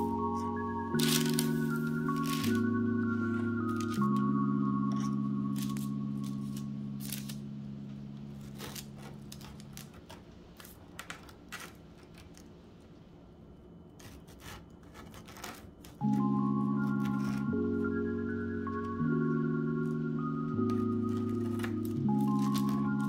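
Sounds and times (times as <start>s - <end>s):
held music chord: 0.0s - 9.6s, 16.0s - 23.0s
music: 0.0s - 9.9s, 16.0s - 23.0s.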